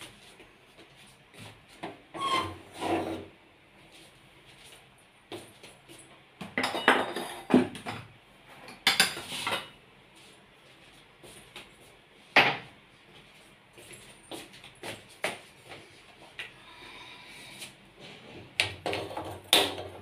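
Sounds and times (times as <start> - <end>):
metal pots and utensils clattering: 6.6 - 8.1.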